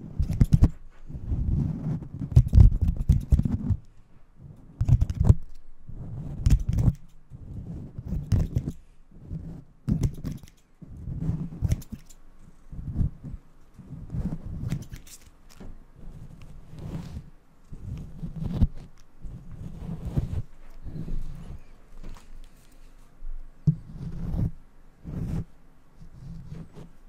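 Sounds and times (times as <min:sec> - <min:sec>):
haircut tools rustling and clicking: 0:10.0 - 0:10.7, 0:11.7 - 0:12.2, 0:14.7 - 0:15.6.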